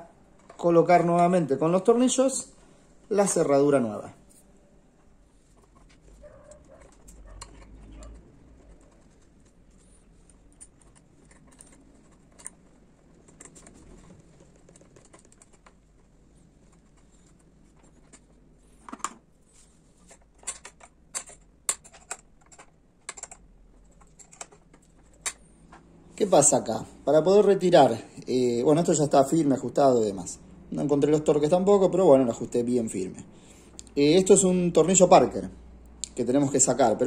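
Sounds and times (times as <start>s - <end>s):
faint handling sounds: 0.2s - 27.0s.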